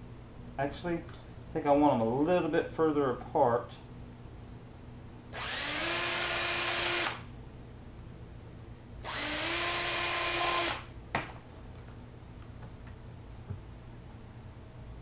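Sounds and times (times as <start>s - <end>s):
cordless drill boring plastic: 5.3s - 7.2s, 9.0s - 10.8s.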